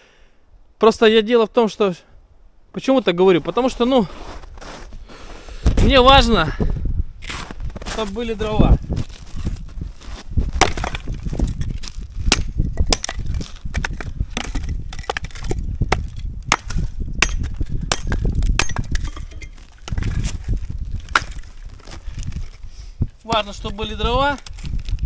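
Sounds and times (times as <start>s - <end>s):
wood cracking and splintering: 8.8s - 22.6s, 23.3s - 25.0s.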